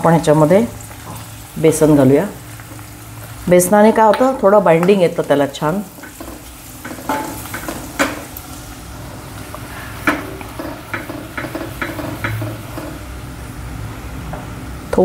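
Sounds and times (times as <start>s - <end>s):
food sizzling in hot oil: 0.0s - 13.7s
spatula scraping and knocking pan: 5.9s - 8.4s, 9.7s - 13.2s.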